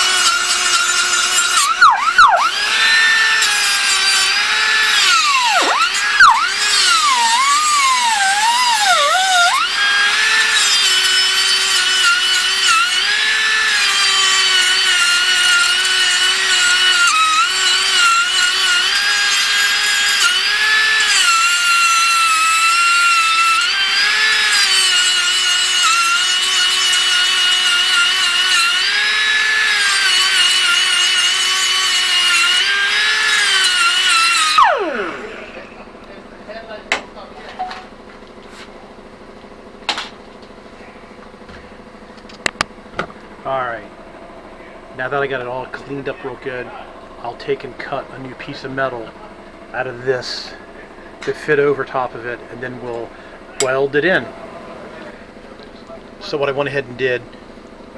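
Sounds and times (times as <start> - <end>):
grinder grinding metal: 0.0 - 36.2.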